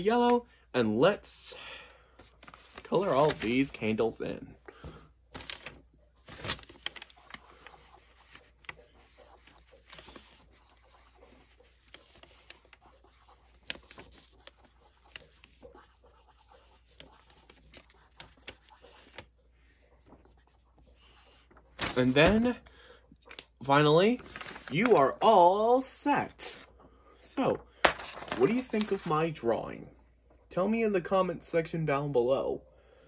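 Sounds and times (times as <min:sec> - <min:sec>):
felt-tip marker scratching on paper: 0:07.2 - 0:19.2.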